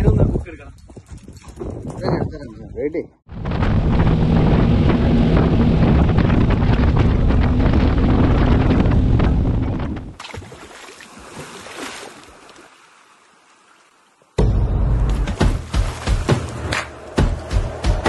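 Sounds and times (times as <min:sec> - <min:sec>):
wind on microphone: 0:00.0 - 0:10.2
outboard engines droning: 0:03.4 - 0:09.5.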